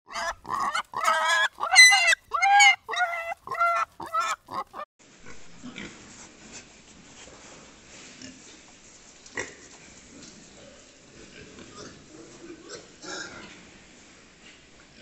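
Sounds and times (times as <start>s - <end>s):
pig squealing: 0.1s - 4.9s
pigs grunting: 0.1s - 6.0s.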